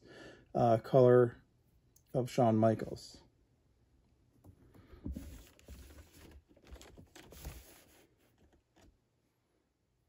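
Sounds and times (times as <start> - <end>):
cardboard box rustling: 5.0 - 8.9.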